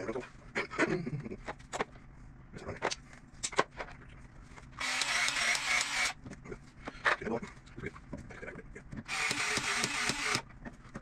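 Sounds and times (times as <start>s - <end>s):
cordless drill whining: 4.8s - 6.2s, 9.1s - 10.4s.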